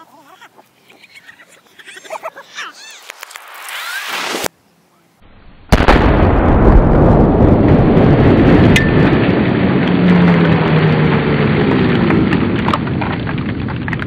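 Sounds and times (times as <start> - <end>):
explosive target blast: 5.2 - 13.9
loud rumble: 5.2 - 14.0.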